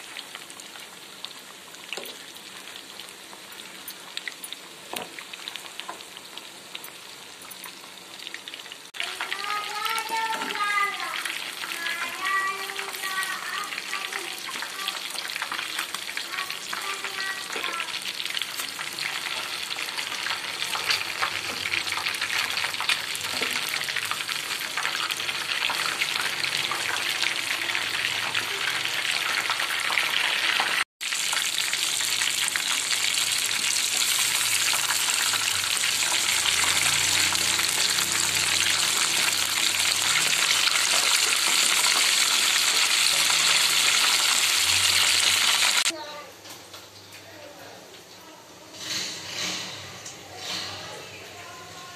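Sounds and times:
fish deep-frying in oil: 0:00.0 - 0:46.0
utensil scraping pan: 0:48.7 - 0:51.0.

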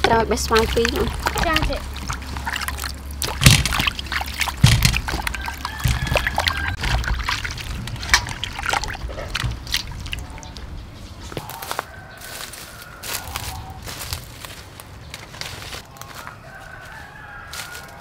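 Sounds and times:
water splashing in metal bowl: 0:00.0 - 0:10.8
knocks: 0:04.6 - 0:08.3.

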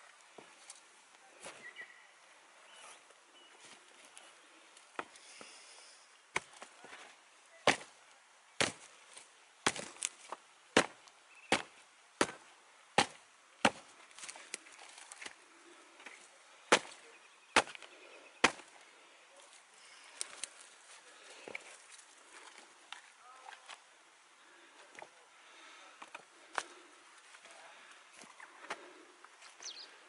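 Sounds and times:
boots stepping on stones and sticks: 0:06.3 - 0:08.0, 0:08.6 - 0:23.8.

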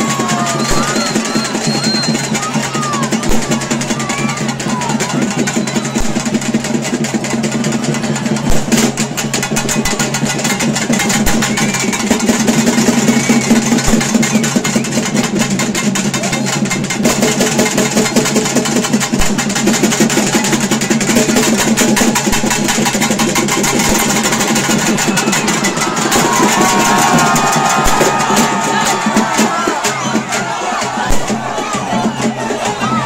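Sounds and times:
rapid dense drumming: 0:00.0 - 0:33.0.

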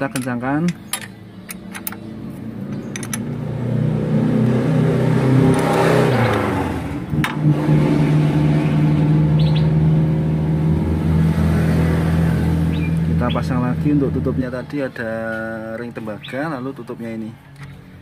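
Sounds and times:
spanner metallic clicks: 0:00.1 - 0:02.1, 0:02.7 - 0:03.4
vehicle engine running: 0:01.1 - 0:16.2.

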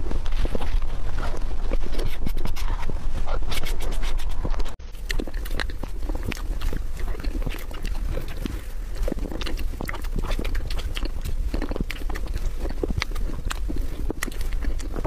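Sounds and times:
low steady hum: 0:00.0 - 0:15.0
wet mouth and lip smacks: 0:05.0 - 0:15.0.

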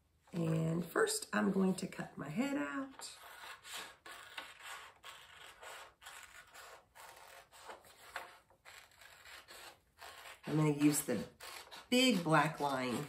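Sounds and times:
scissors cutting paper: 0:02.9 - 0:13.0.

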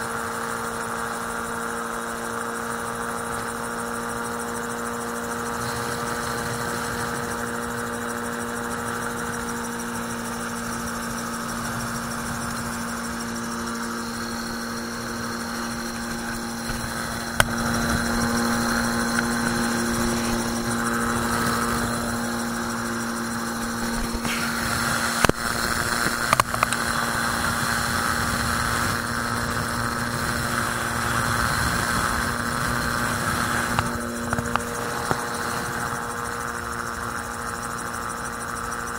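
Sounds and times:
autogyro engine and propeller drone: 0:00.0 - 0:38.9
sharp clicks: 0:23.6 - 0:27.0.

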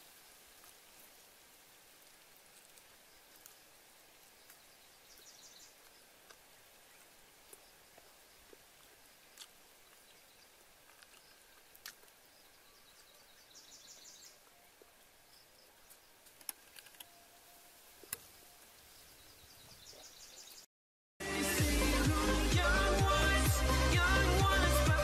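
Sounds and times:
woodland ambience: 0:00.0 - 0:25.0
loud music: 0:21.2 - 0:25.0.

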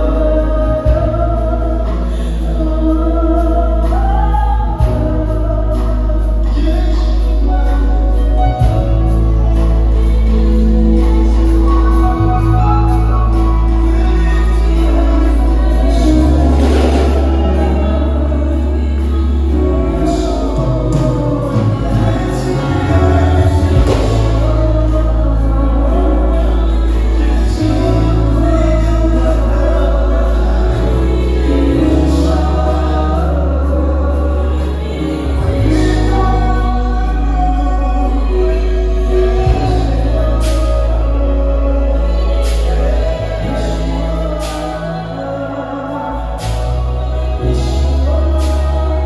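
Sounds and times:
choir singing: 0:00.0 - 0:49.0
held bass notes: 0:00.0 - 0:49.0
drums: 0:15.7 - 0:18.1, 0:19.0 - 0:25.2.

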